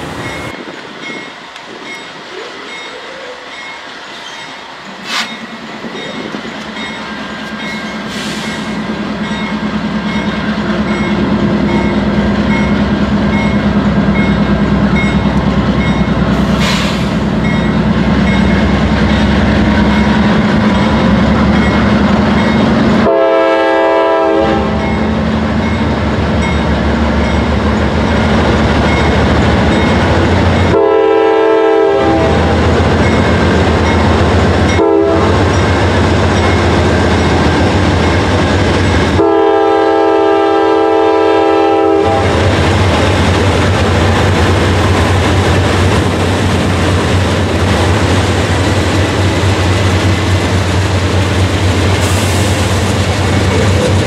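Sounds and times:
passing train rumble: 0.0 - 54.0
train horn blasts: 22.9 - 25.2, 30.7 - 32.7, 34.7 - 35.5, 39.1 - 42.4.

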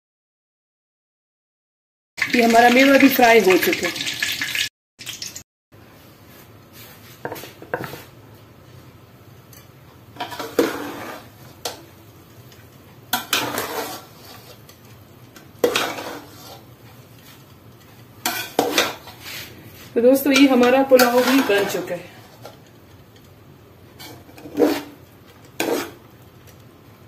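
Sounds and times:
spoon scraping a metal pot: 10.2 - 11.8, 13.1 - 14.8, 15.6 - 16.7, 18.2 - 19.5, 20.2 - 22.5, 24.0 - 26.1.

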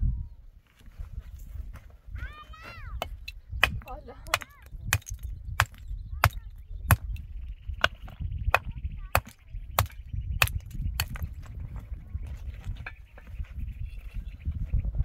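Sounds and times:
hammer striking stone: 3.0 - 7.1, 8.6 - 11.2.

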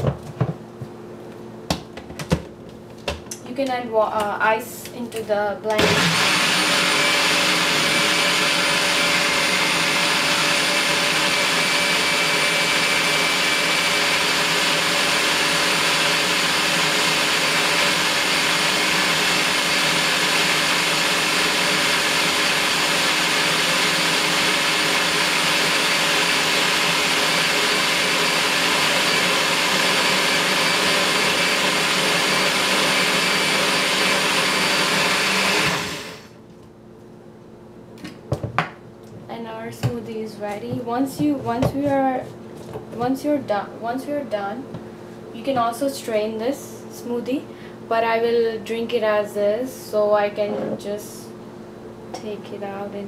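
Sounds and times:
blender motor running: 5.7 - 36.4.

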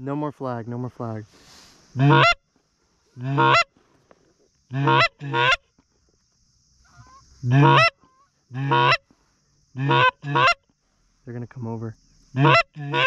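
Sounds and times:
goose call honks: 2.0 - 2.4, 3.2 - 3.7, 4.7 - 5.6, 6.9 - 9.0, 9.8 - 10.6, 12.4 - 13.0.

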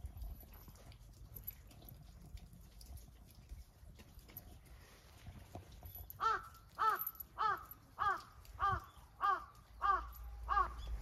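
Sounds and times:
crow cawing: 6.2 - 10.8.

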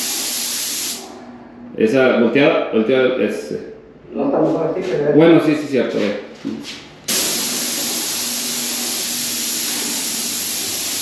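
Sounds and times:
paint sprayer hissing: 0.0 - 1.0, 7.1 - 11.0.

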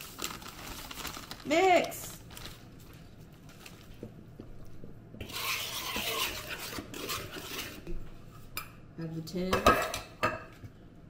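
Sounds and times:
batter stirred in plastic bowl: 5.2 - 7.9.

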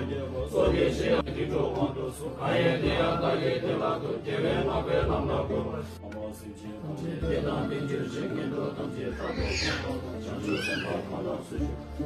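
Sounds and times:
monks chanting in deep voices: 0.0 - 12.0.

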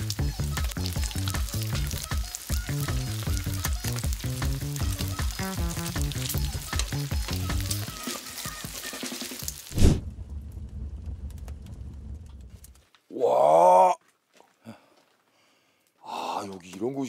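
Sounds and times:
background music: 0.0 - 9.7
pork sizzling on griddle: 0.0 - 10.0.

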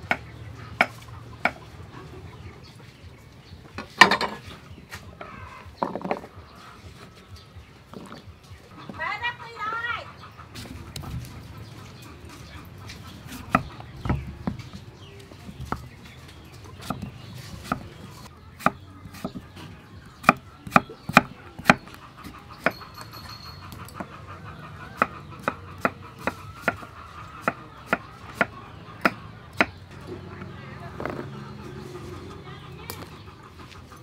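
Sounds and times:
cleaver chopping on wooden board: 20.2 - 22.8.

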